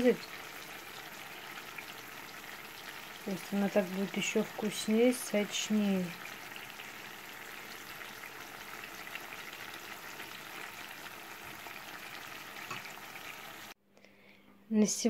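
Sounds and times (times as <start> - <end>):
chicken sizzling in frying pan: 0.0 - 13.8.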